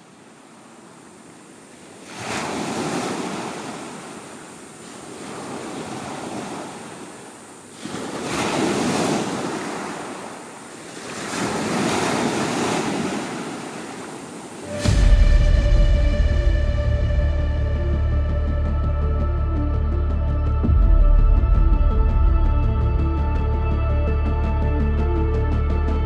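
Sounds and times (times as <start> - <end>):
waves breaking on pebbles: 1.8 - 14.8.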